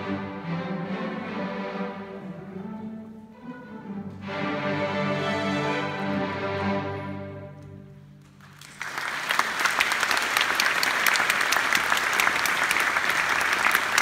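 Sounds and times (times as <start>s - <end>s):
audience applauding: 8.2s - 14.0s.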